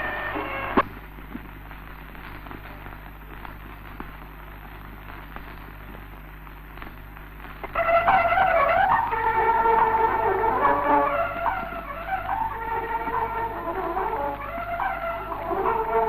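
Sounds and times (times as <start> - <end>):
music: 0.0 - 0.9, 5.1 - 16.0
film soundtrack crackle and hiss: 0.0 - 16.0
small pops: 0.3 - 8.2.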